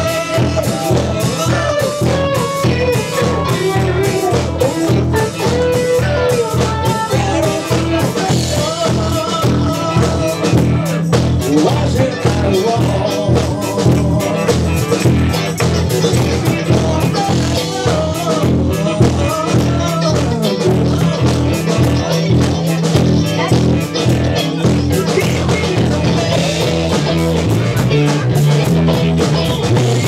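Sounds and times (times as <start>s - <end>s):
live band playing funk-rock: 0.0s - 30.0s.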